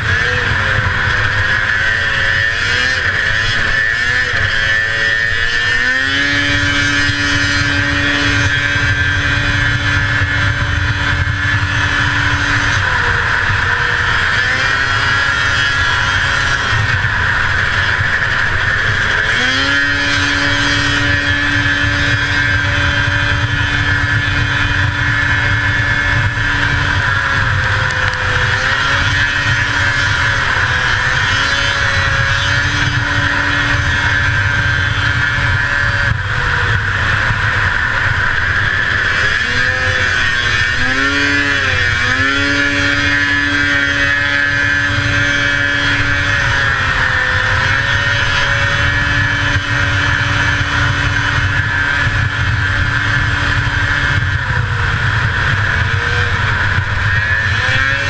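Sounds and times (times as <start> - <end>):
snowmobile engine running hard: 0.0 - 58.0.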